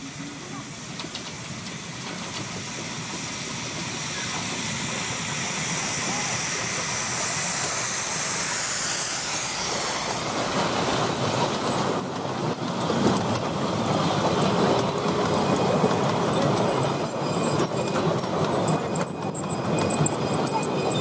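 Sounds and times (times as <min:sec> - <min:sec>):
carriages rolling on track: 0:00.0 - 0:21.0
steam locomotive hissing: 0:00.0 - 0:21.0.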